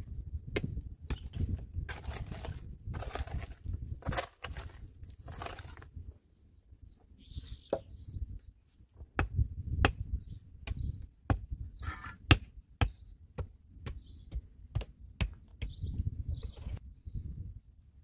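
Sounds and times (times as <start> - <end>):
digging tool striking stony earth: 0.5 - 5.9, 10.6 - 15.8
dirt and gravel crunching: 1.2 - 6.0.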